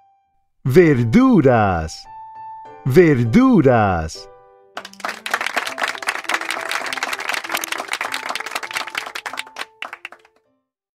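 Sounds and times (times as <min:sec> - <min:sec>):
applause: 0:04.8 - 0:10.4.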